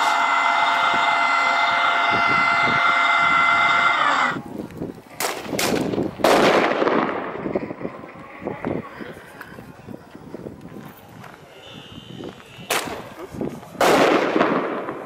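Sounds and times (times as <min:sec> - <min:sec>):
firecracker bangs: 0:05.2 - 0:07.6, 0:12.6 - 0:13.2, 0:13.8 - 0:15.0.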